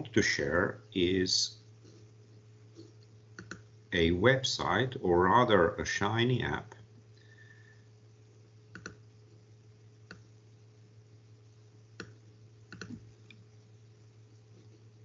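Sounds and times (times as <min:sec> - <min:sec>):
low electrical hum: 0:00.0 - 0:15.0
computer clicks: 0:03.4 - 0:03.6, 0:08.7 - 0:09.0, 0:12.0 - 0:13.4.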